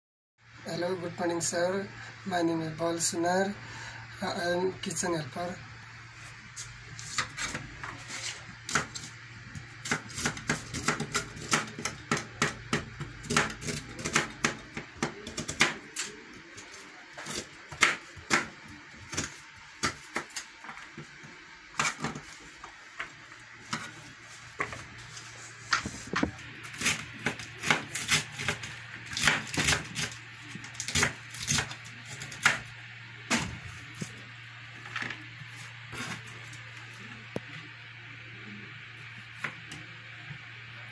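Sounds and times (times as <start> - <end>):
knife chopping on plastic board: 9.8 - 16.1, 17.2 - 18.5, 26.1 - 30.2.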